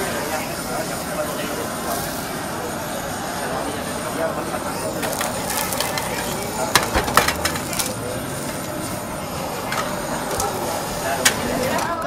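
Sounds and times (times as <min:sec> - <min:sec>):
scallops sizzling on a grill: 0:00.0 - 0:12.0
shells knocking against grill: 0:05.2 - 0:08.0.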